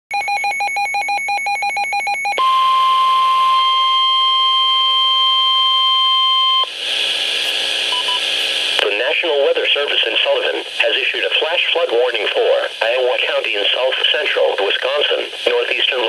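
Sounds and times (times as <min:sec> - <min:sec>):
steady warning alarm tone: 0:00.2 - 0:06.7
radio hiss: 0:06.7 - 0:16.0.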